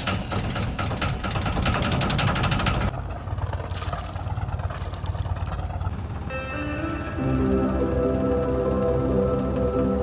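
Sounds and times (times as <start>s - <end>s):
boat engine clattering: 0.0s - 10.0s
low engine drone: 1.9s - 10.0s.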